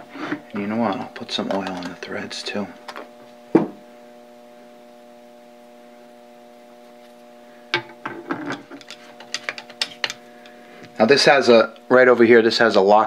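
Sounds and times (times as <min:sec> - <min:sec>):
steady electrical hum: 0:00.0 - 0:13.0
metal parts knocking on workbench: 0:07.7 - 0:10.2.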